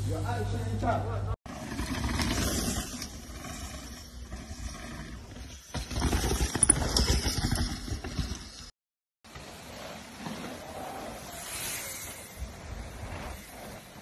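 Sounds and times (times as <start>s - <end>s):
bike tyres rolling on gravel: 1.5s - 8.7s, 9.3s - 14.0s
bike knocks and rattles: 5.3s - 8.7s.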